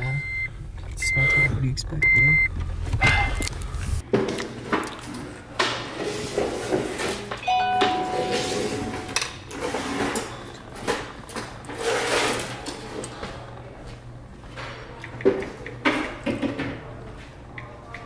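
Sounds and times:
chime-like tone: 7.4 - 9.3.

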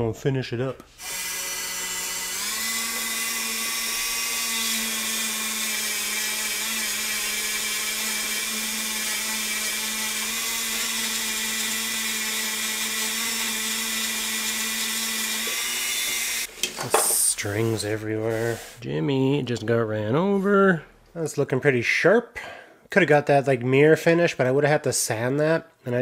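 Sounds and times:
rotary tool polishing metal: 1.0 - 16.5.

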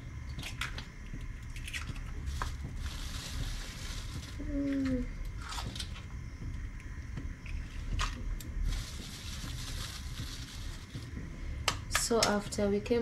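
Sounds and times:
soft watery hiss: 2.2 - 6.4, 7.6 - 11.6
person humming: 4.4 - 5.1.

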